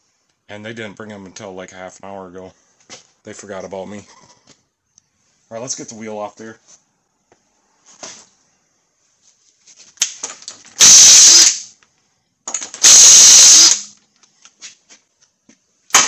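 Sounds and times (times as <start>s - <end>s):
impact wrench bursts: 10.8s - 11.8s, 12.6s - 14.0s.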